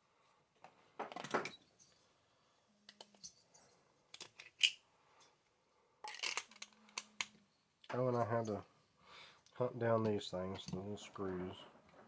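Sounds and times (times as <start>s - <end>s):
small metal parts clicking: 6.0s - 7.3s.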